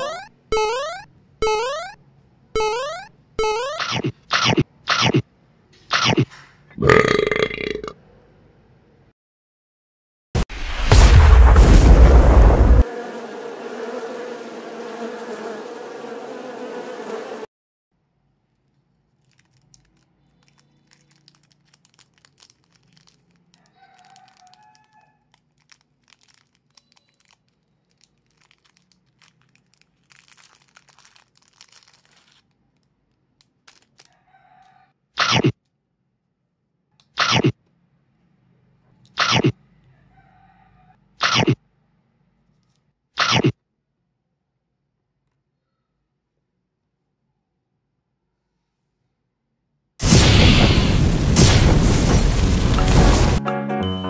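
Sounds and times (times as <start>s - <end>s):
plastic wrapper crackling: 18.4s - 34.2s.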